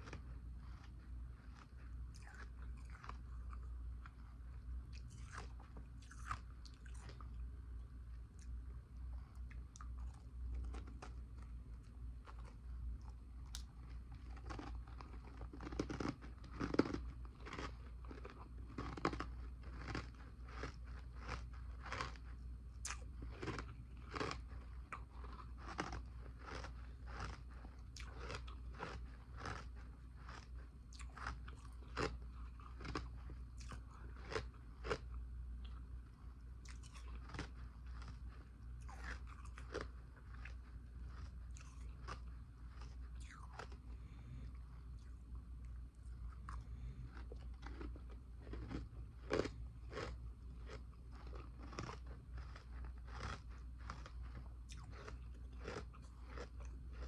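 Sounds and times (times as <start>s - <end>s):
person crunching ice: 14.4s - 22.2s, 47.6s - 50.1s, 50.7s - 54.1s, 54.8s - 57.0s.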